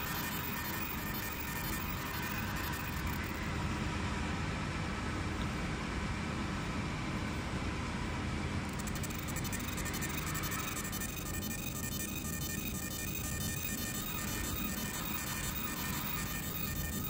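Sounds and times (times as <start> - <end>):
buzzing hiss of laser pulses: 0.0 - 3.4, 8.7 - 17.0
laser machine whirring: 0.0 - 3.4, 8.7 - 17.0.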